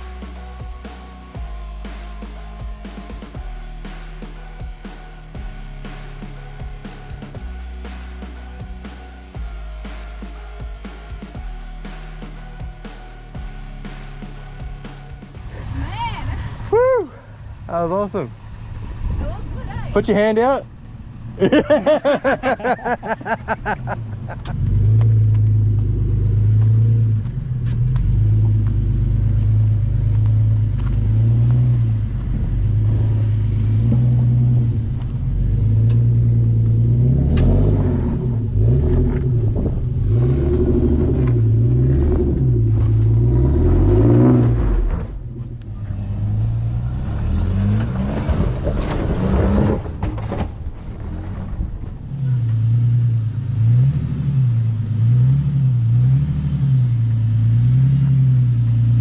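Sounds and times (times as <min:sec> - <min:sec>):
engine running at low revs: 0:00.0 - 0:59.0.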